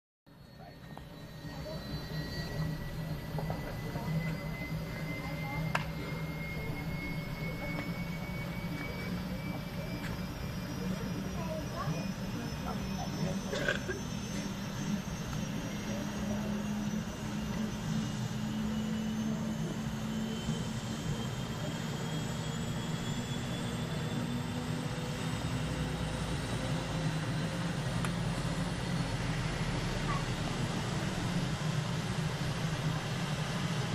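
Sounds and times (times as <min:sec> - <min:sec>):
faint high turbine whine: 0:00.3 - 0:33.9
helicopter engines and rotor: 0:00.3 - 0:33.9.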